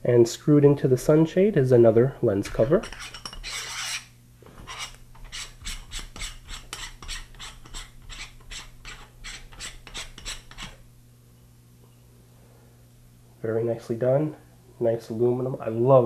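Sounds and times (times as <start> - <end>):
metal cover scraping on threads: 2.8 - 10.8.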